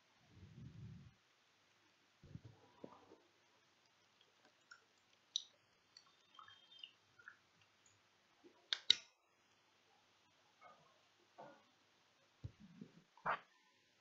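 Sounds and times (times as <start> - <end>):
faint clicks and taps: 6.8 - 9.2.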